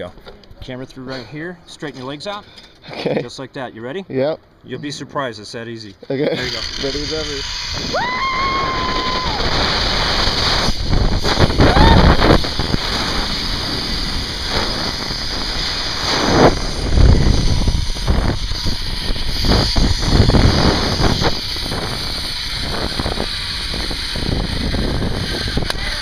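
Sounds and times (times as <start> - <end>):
pulleys hissing along cable: 6.3 - 26.0
wind buffeting microphone: 6.5 - 26.0.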